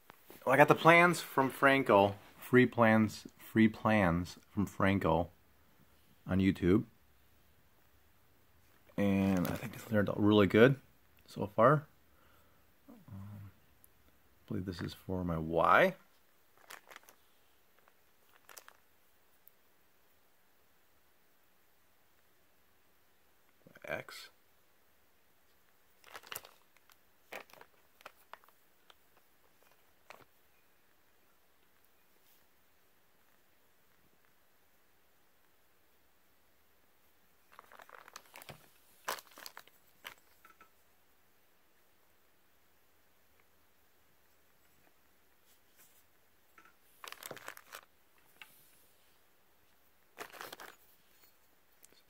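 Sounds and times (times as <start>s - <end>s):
plastic bags crinkling: 9.2s - 9.9s, 16.6s - 17.2s, 17.8s - 18.8s, 26.0s - 30.3s, 37.4s - 40.6s, 46.9s - 48.4s, 50.1s - 51.3s.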